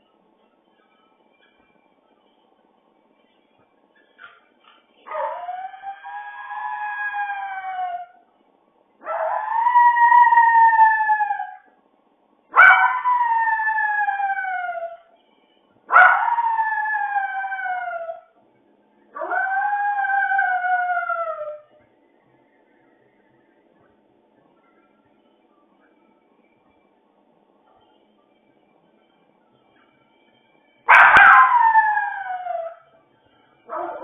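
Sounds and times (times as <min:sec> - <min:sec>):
dog howling: 0:05.1 - 0:08.2, 0:09.0 - 0:11.7, 0:12.5 - 0:15.1, 0:15.9 - 0:18.3, 0:19.2 - 0:21.7, 0:30.9 - 0:32.9, 0:33.7 - 0:34.0.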